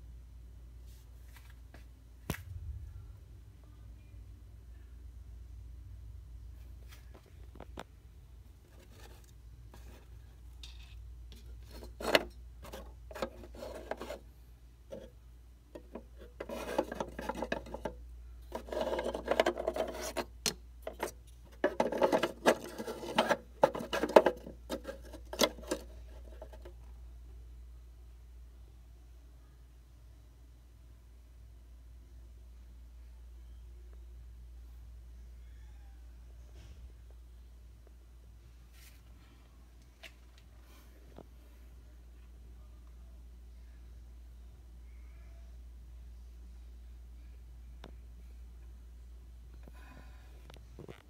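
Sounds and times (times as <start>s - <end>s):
low steady hum: 0.0s - 51.0s
rubbing and scraping: 8.6s - 14.3s, 14.9s - 15.2s, 15.8s - 26.8s.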